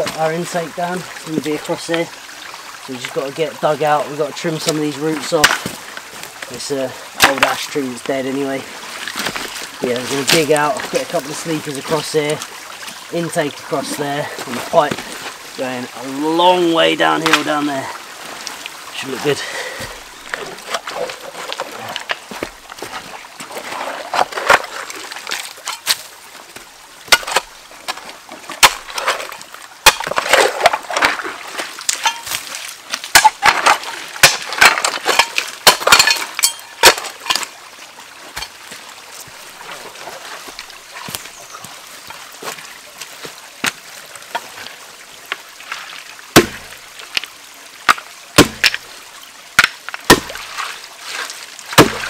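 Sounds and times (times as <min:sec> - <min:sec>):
water splashing and sloshing: 0:00.0 - 0:52.0
tools knocking and scraping wood and stone: 0:04.5 - 0:13.0, 0:13.6 - 0:37.5, 0:38.3 - 0:41.3, 0:46.3 - 0:47.3, 0:47.9 - 0:48.9, 0:49.6 - 0:52.0.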